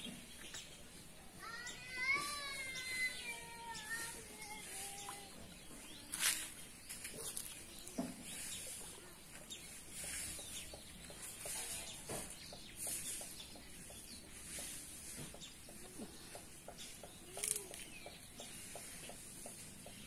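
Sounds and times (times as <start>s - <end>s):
birds calling: 0.0s - 20.0s.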